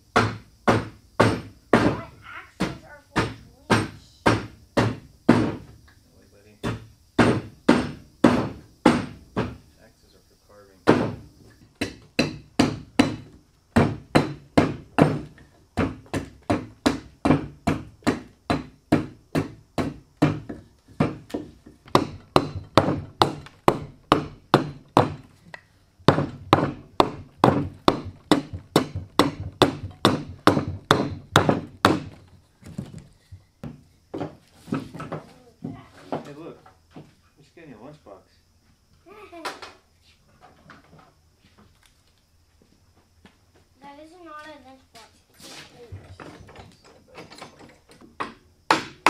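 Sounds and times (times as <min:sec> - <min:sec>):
hatchet chopping wood: 0:00.1 - 0:02.0, 0:02.6 - 0:05.7, 0:06.6 - 0:09.6, 0:10.9 - 0:25.3, 0:26.1 - 0:32.3, 0:48.2 - 0:49.0.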